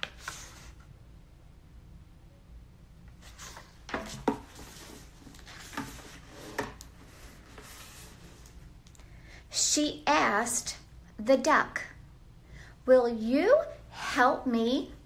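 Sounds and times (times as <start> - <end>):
pages rustling: 0.0 - 0.8, 3.2 - 8.6.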